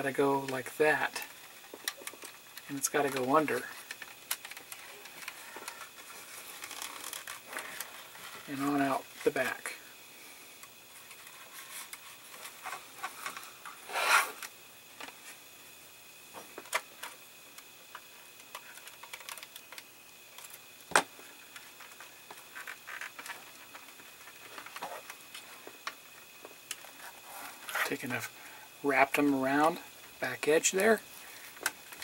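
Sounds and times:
small clicks and rustles: 1.3s - 8.5s, 10.6s - 13.8s, 16.3s - 27.9s.

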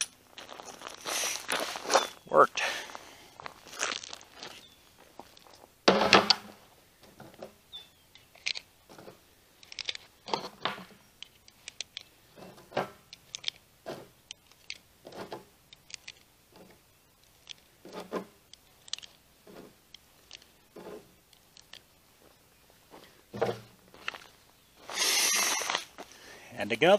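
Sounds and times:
footsteps crunching on gravel: 0.0s - 5.8s, 22.1s - 26.2s.

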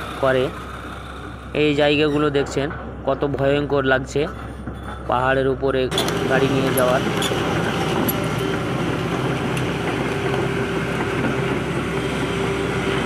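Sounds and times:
excavator diesel engine running: 5.9s - 13.0s.

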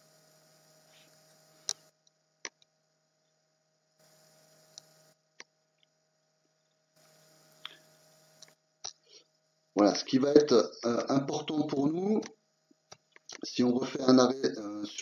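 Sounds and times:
faint electrical hum: 0.0s - 15.0s
quiet clicks: 4.0s - 5.9s.

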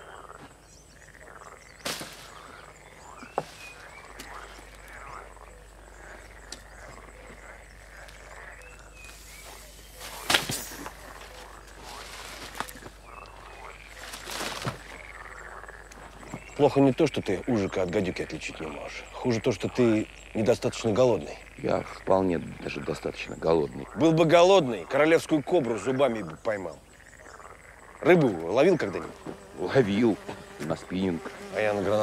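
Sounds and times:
frogs croaking: 0.0s - 32.0s
rustles: 1.7s - 16.5s.

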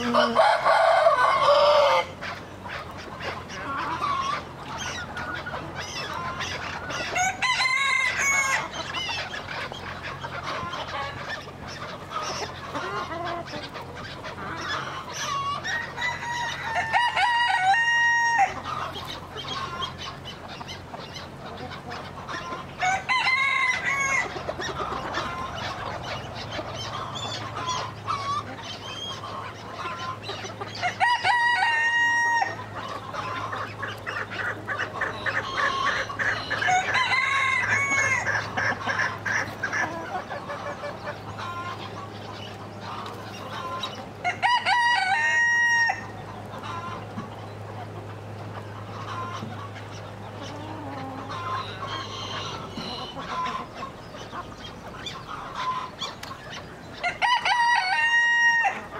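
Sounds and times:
rooster crowing: 0.0s - 2.2s, 7.1s - 8.7s, 15.6s - 18.6s, 22.8s - 24.4s, 30.8s - 32.6s, 36.5s - 38.3s, 44.2s - 46.1s, 57.0s - 58.9s
chickens clucking: 0.0s - 58.9s.

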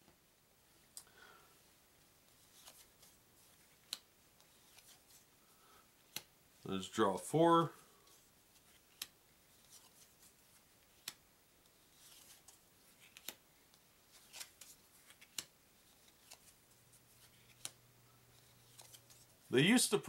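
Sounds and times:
light card rustling: 2.3s - 5.3s, 8.0s - 19.5s
playing cards flipping clicks: 8.8s - 10.0s, 12.0s - 13.4s, 14.1s - 16.6s, 17.2s - 17.8s, 18.4s - 19.2s.

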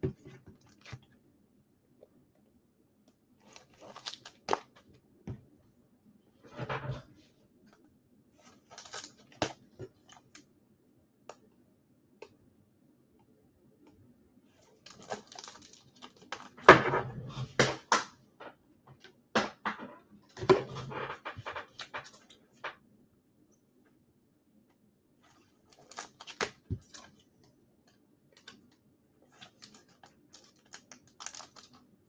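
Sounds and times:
cards and wrappers crinkling: 3.4s - 4.8s, 8.5s - 10.4s, 14.8s - 16.7s, 25.2s - 27.2s, 29.3s - 31.8s.

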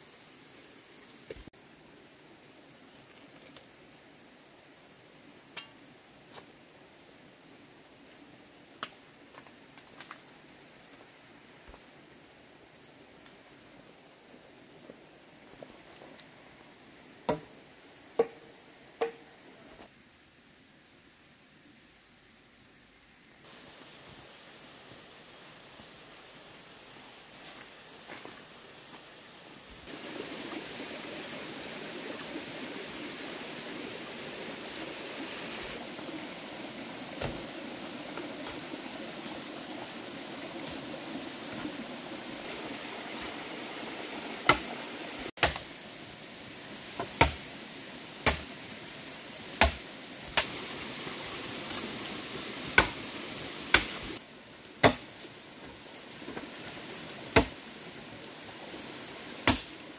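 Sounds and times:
steady background hiss: 0.0s - 59.9s
machete chopping bamboo: 45.4s - 45.7s, 47.0s - 47.4s, 48.2s - 48.5s, 49.6s - 50.6s, 52.8s - 53.0s, 53.7s - 54.0s, 54.8s - 55.2s, 57.3s - 57.6s, 59.4s - 59.8s.

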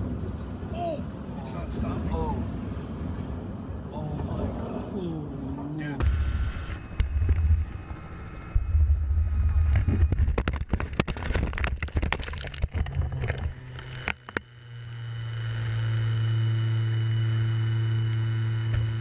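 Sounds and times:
steady low hum: 0.0s - 19.0s
helicopter engine and rotor drone: 6.0s - 11.1s, 12.7s - 19.0s
hard impacts and crunching: 9.6s - 14.6s.

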